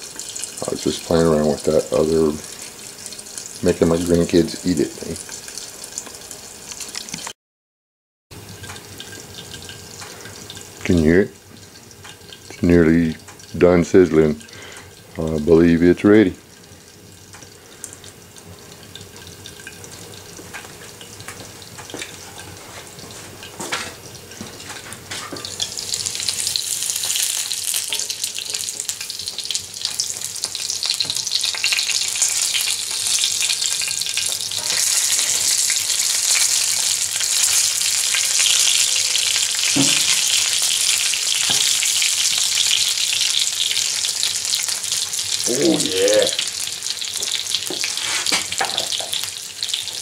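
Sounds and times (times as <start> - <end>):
meat sizzling and popping in grease: 0.0 - 7.4, 8.4 - 50.0
man talking: 0.6 - 2.4, 3.6 - 5.2, 10.8 - 11.4, 12.5 - 14.4, 15.2 - 16.4, 45.4 - 46.4
metal utensil knocking in pan: 39.7 - 40.2.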